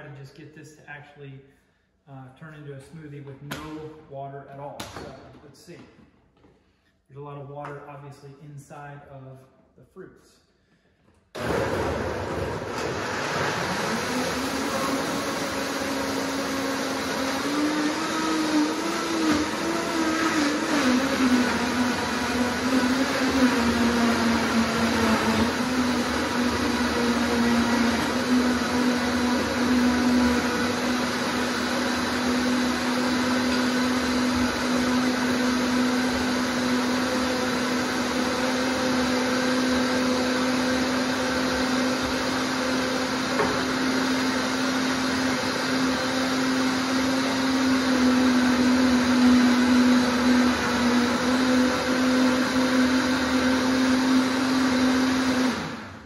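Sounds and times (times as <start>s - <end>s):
blender motor whirring: 11.4s - 56.0s.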